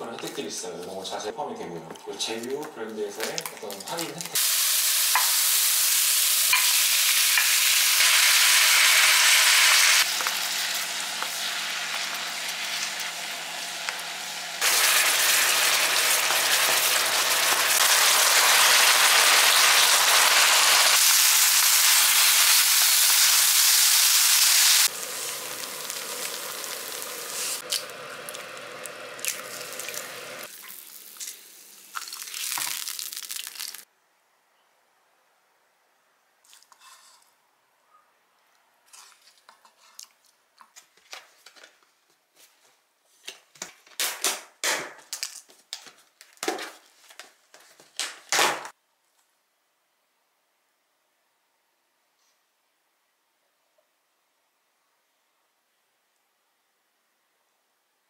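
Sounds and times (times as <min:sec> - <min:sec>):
food sizzling in a frying pan: 0:04.3 - 0:33.9
wooden spoon scraping a pan: 0:36.5 - 0:37.3, 0:38.9 - 0:40.1.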